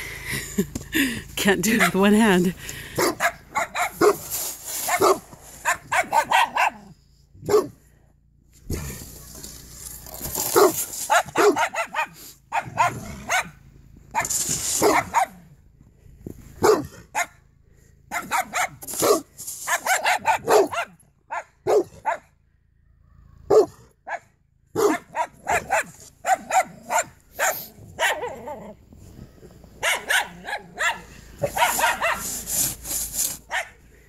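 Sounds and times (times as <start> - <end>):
dogs barking: 2.8 - 4.3, 4.9 - 7.8, 10.4 - 15.4, 16.6 - 17.4, 18.1 - 22.4, 23.4 - 28.8, 29.8 - 32.5, 33.4 - 33.8.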